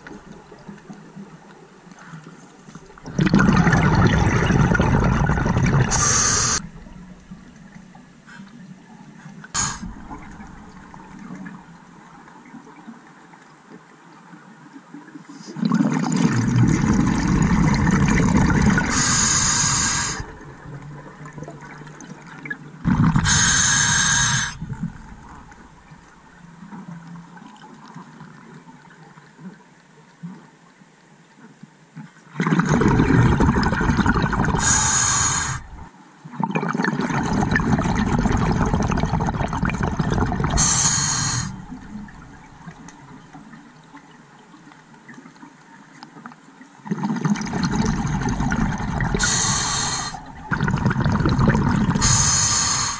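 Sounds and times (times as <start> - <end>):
gurgling exhaled bubbles: 2.8 - 7.2, 9.6 - 11.7, 15.6 - 26.1, 32.4 - 43.8, 46.8 - 52.9
diver breathing through regulator: 5.9 - 6.7, 9.6 - 10.0, 18.7 - 20.4, 22.9 - 24.9, 34.4 - 35.8, 40.4 - 41.9, 49.0 - 51.0, 51.9 - 52.9.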